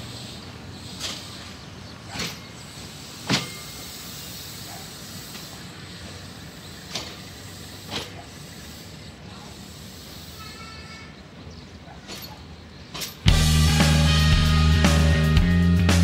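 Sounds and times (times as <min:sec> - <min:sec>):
train coaches rolling: 0:00.0 - 0:14.1
sharp metallic clacks: 0:02.1 - 0:02.6, 0:06.9 - 0:07.3, 0:12.0 - 0:13.3.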